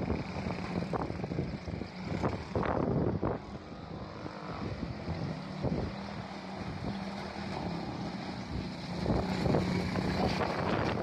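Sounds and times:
quad engines running: 0.0 - 11.0.

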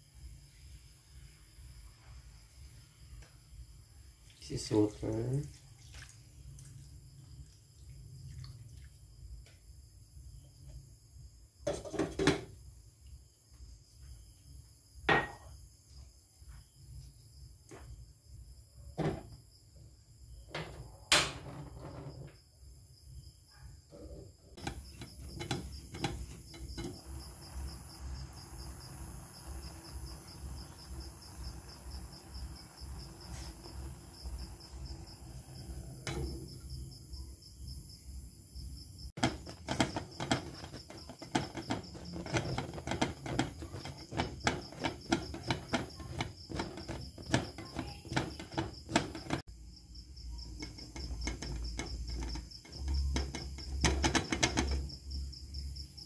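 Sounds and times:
crickets chirping: 0.0 - 56.0
pot of water boiling hard: 24.6 - 36.9, 39.2 - 49.5, 50.4 - 55.0.

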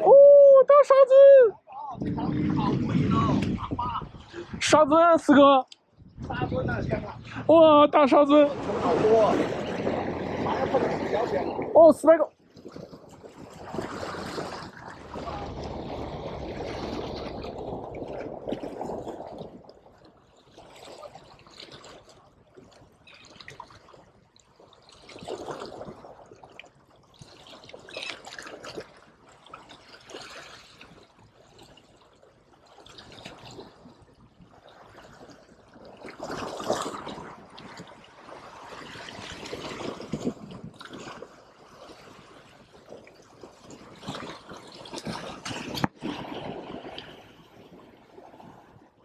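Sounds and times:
waves washing against rocks: 6.6 - 19.9.

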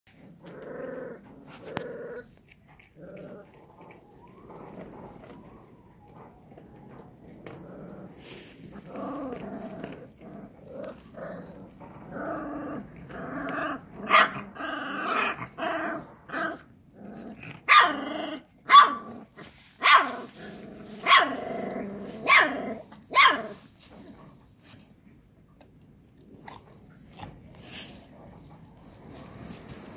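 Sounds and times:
puppies growling: 0.1 - 19.4, 20.1 - 24.8
short sharp puppy barks: 18.7 - 19.1.

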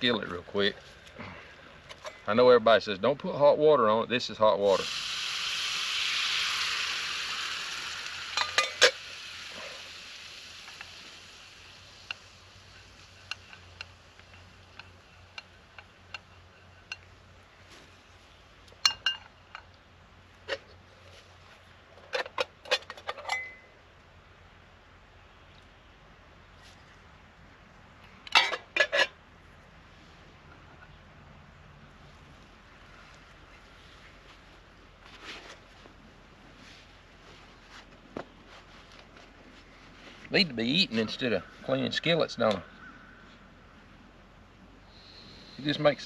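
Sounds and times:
water sizzling on hot skillet: 4.7 - 17.5.

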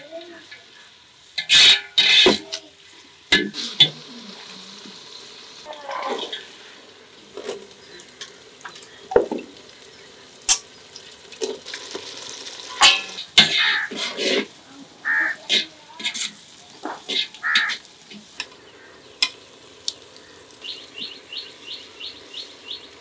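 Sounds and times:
frying sizzle: 0.0 - 23.0
metal spoon scraping in pot: 1.4 - 2.4, 12.7 - 14.5, 15.5 - 16.4.

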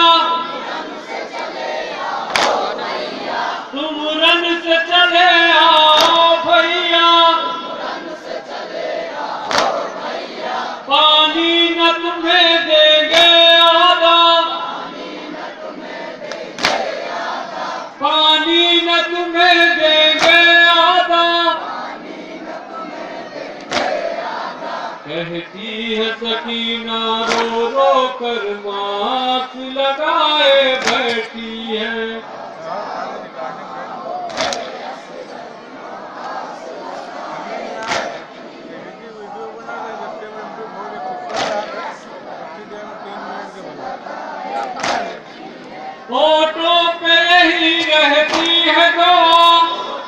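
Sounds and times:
men chanting and singing: 0.0 - 50.0
sharp claps or knocks: 2.3 - 2.7, 5.9 - 6.3, 9.4 - 9.8, 13.1 - 13.4, 16.2 - 17.0, 20.1 - 20.6, 23.6 - 24.1, 27.2 - 27.7, 30.7 - 31.3, 34.3 - 34.8, 37.8 - 38.3, 41.3 - 41.7, 44.6 - 45.2, 47.7 - 48.7.

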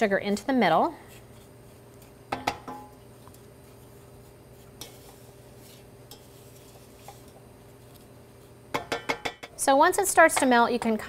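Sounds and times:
steady low hum: 0.0 - 11.0
wooden spoon scraping saucepan: 0.7 - 2.3, 2.9 - 8.6.

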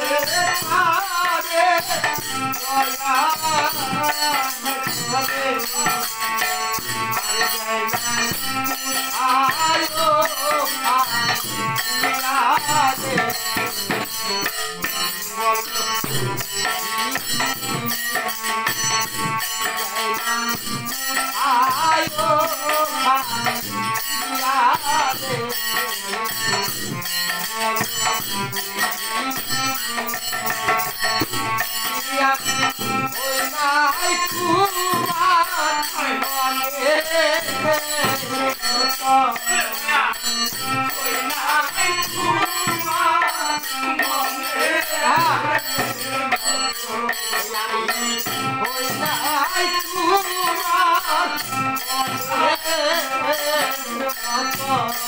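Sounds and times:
hand-held percussion rattling: 0.0 - 55.0
harmonium: 0.0 - 55.0
man singing folk song: 9.2 - 13.8, 32.1 - 55.0
barrel drum beating: 30.5 - 31.6.

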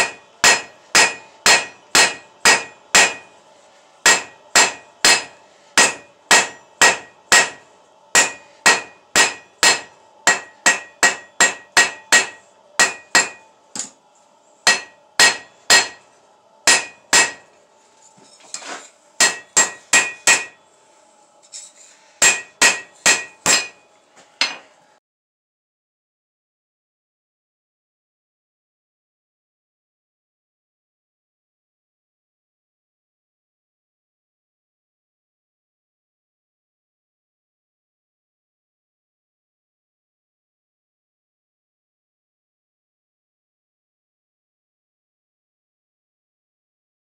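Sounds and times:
hammer striking metal on anvil: 0.0 - 3.4, 4.0 - 14.0, 14.6 - 17.5, 19.2 - 20.6, 21.5 - 24.7.

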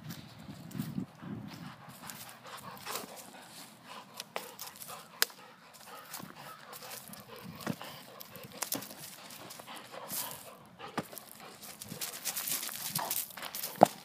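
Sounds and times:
claws and ball clicking and scraping: 1.9 - 14.0.

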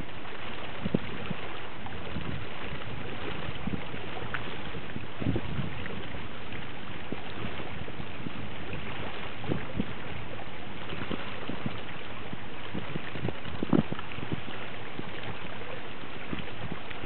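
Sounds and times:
water rushing: 0.0 - 17.0
wind at sea: 0.0 - 17.0
wind buffeting microphone: 0.0 - 17.0.

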